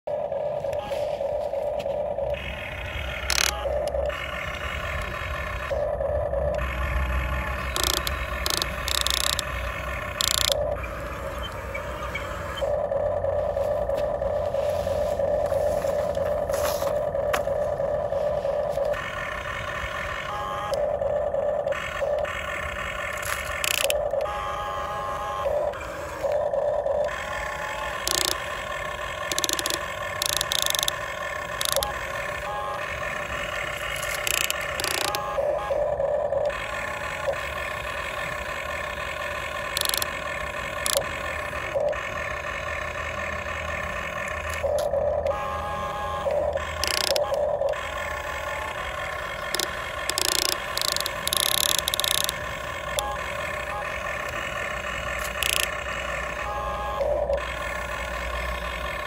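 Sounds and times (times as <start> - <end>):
small electric motors whining: 0.1 - 59.0
short clicking and rapid ticking: 2.4 - 5.8, 6.4 - 10.8, 21.7 - 24.3, 27.0 - 35.3, 36.4 - 45.4, 46.3 - 56.4.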